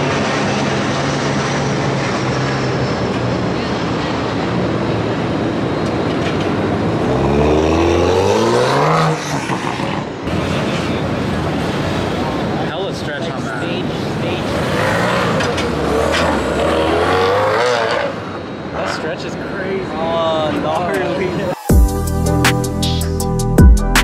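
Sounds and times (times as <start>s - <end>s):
car engine revving: 0.0s - 12.8s, 13.6s - 19.2s.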